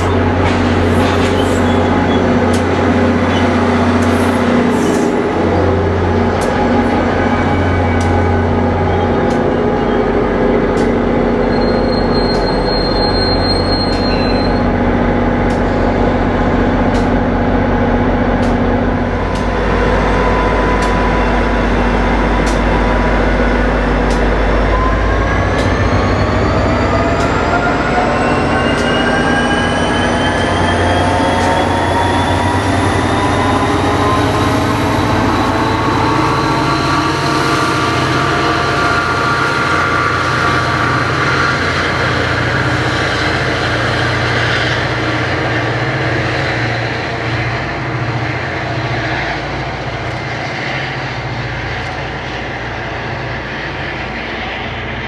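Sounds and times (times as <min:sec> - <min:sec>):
diesel locomotive engine running: 0:00.0 - 0:55.0
motor whine rising in pitch: 0:19.0 - 0:45.1.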